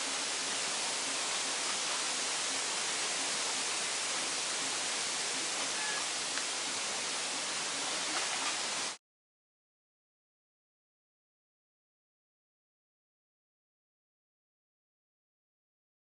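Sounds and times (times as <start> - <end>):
outdoor ambience hiss: 0.0 - 9.0
faint short chirp: 5.7 - 6.1.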